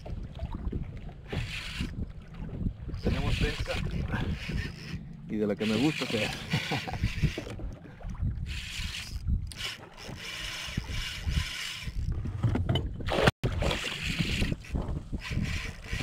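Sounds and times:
wind buffeting microphone: 0:00.0 - 0:05.5, 0:06.8 - 0:16.0
water slapping against kayak hull: 0:12.0 - 0:16.0.

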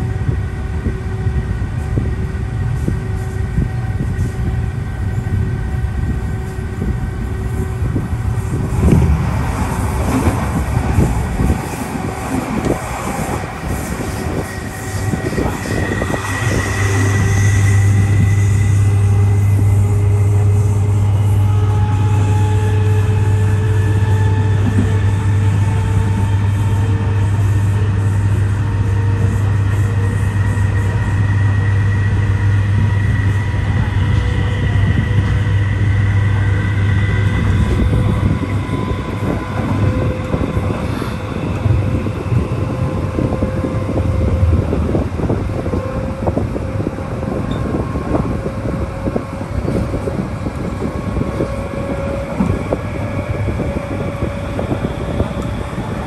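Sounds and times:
train motor hum and whine: 0:00.0 - 0:56.0
train wheels clattering on track: 0:06.4 - 0:19.4.

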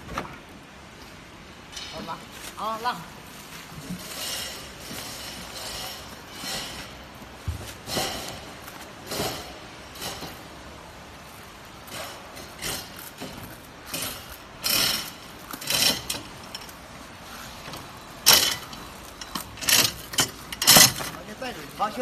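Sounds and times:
lever hoist ratcheting: 0:18.2 - 0:21.2.

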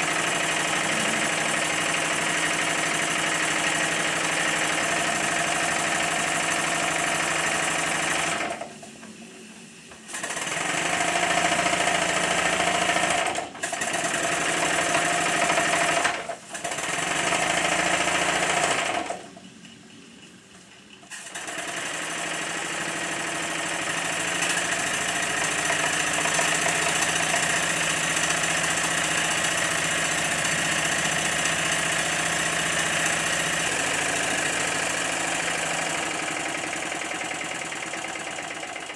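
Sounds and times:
steam traction engine running: 0:00.0 - 0:09.3, 0:21.1 - 0:38.9.

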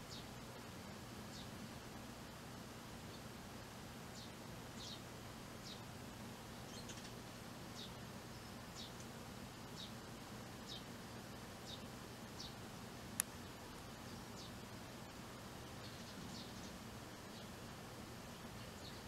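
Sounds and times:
faint steady hum: 0:00.0 - 0:19.0
sparrow chirping: 0:04.1 - 0:05.9, 0:06.6 - 0:09.0, 0:09.7 - 0:10.0, 0:10.6 - 0:10.9, 0:11.6 - 0:12.6, 0:13.4 - 0:14.6, 0:15.8 - 0:17.6, 0:18.3 - 0:19.0.

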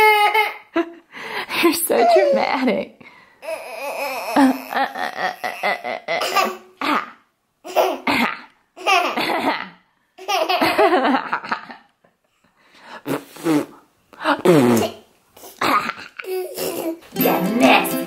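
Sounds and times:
baby laughing: 0:03.6 - 0:07.0, 0:07.6 - 0:08.1, 0:08.8 - 0:11.1, 0:15.5 - 0:17.0.

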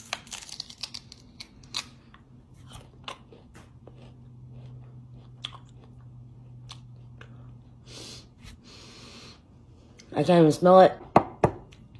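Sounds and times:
chewing crunchy ginger root: 0:00.0 - 0:07.9
low steady hum: 0:00.0 - 0:11.9.

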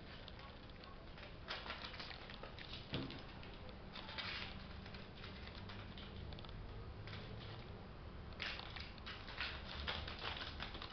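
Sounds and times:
kitten claws clicking on tiles: 0:08.4 - 0:10.9.

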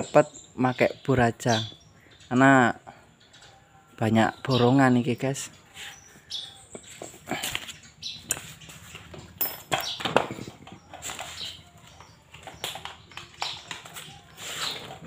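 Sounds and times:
metal tools set down on concrete: 0:08.3 - 0:11.6.

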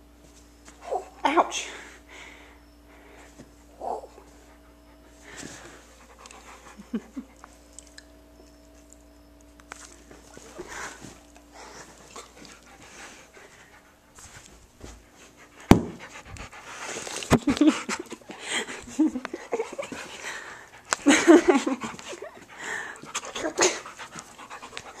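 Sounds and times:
dog panting: 0:03.9 - 0:07.6, 0:10.3 - 0:25.0.

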